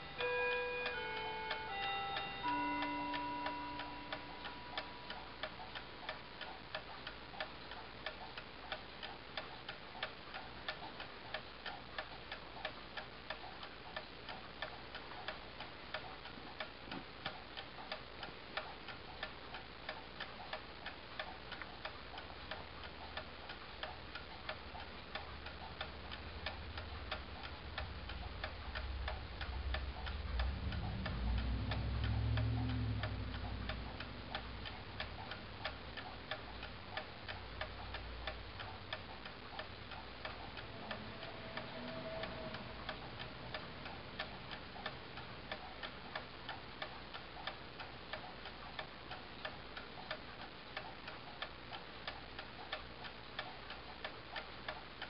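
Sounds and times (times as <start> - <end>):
clock ticking: 0.0 - 55.0
low rumble: 25.5 - 36.4, 39.5 - 45.6.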